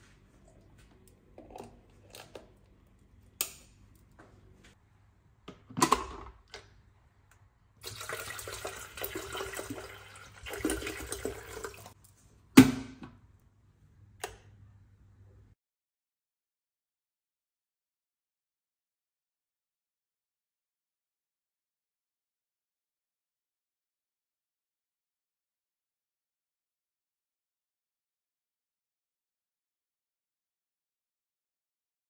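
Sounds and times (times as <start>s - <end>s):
water pouring into kettle: 7.8s - 12.0s
small click: 14.2s - 14.5s.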